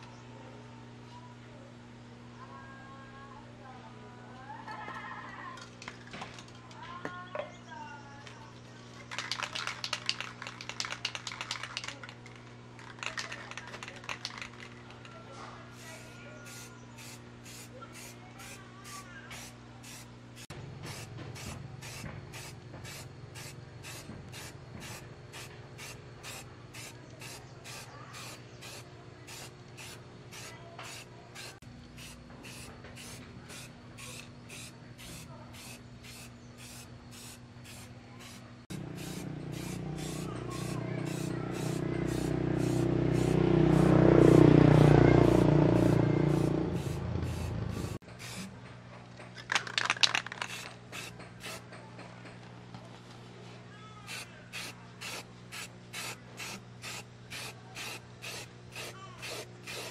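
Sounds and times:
aerosol spray can hissing: 0:15.9 - 0:43.9, 0:45.2 - 0:48.5, 0:50.4 - 0:51.6, 0:54.1 - 0:59.9.

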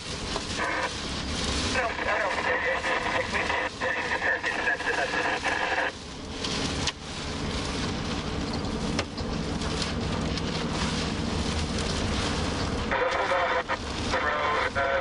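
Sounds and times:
car driving in heavy rain: 0:00.0 - 0:15.0.

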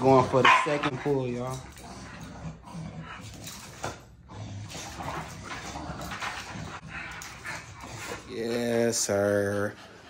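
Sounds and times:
dogs breathing noisily: 0:00.0 - 0:10.0.

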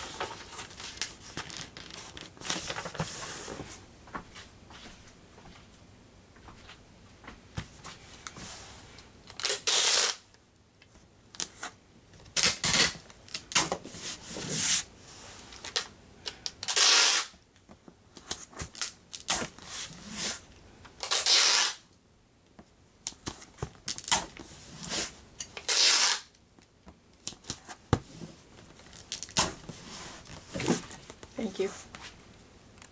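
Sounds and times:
packing tape pulled from dispenser: 0:09.3 - 0:10.2, 0:12.3 - 0:13.7, 0:16.5 - 0:17.4, 0:21.0 - 0:21.8, 0:23.9 - 0:26.4.

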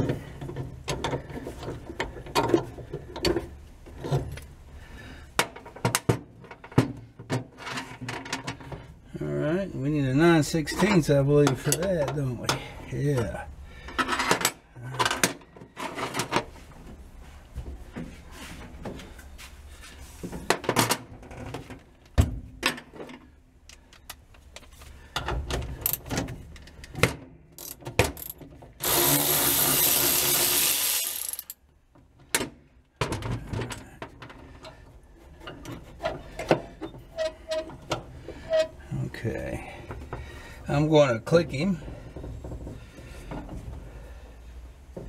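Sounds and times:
wrench metal clicks: 0:27.6 - 0:31.6.

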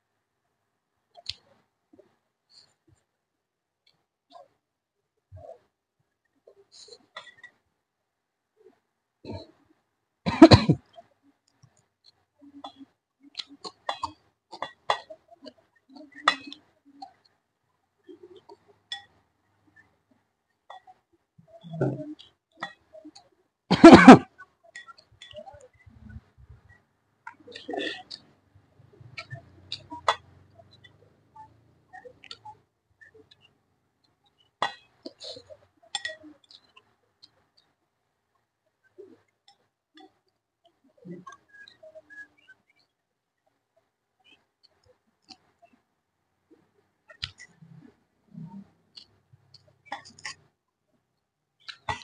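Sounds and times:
quiet chewing: 0:10.8 - 0:17.4, 0:24.2 - 0:45.9, 0:46.5 - 0:50.6.

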